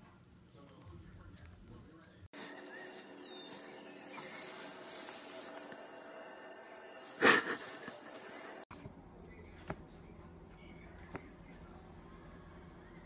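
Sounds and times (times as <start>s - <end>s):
small birds chirping: 2.4s - 5.6s.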